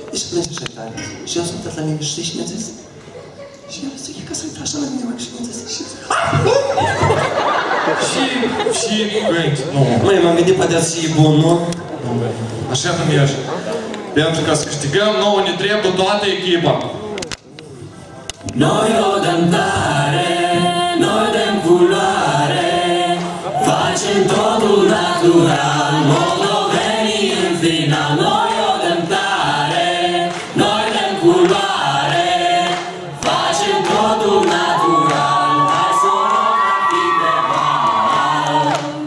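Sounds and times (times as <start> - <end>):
group singing in chorus: 18.4 - 39.0.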